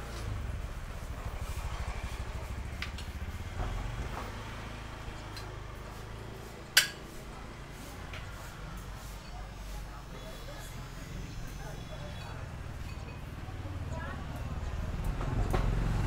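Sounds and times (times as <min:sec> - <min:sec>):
motor scooter engine running: 0:00.0 - 0:07.8.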